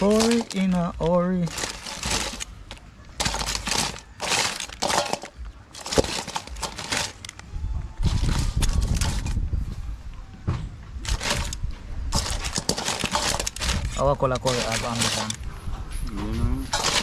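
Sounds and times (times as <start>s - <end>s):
crabs clattering in steel bowl: 0.0s - 7.4s, 8.1s - 9.4s, 11.0s - 15.4s, 16.7s - 17.0s
seasoning packet crinkling: 0.0s - 7.4s, 11.0s - 11.6s, 12.2s - 15.4s.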